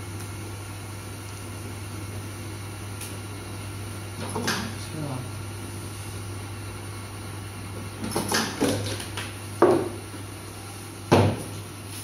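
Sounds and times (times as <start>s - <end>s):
steady hum: 0.0s - 12.0s.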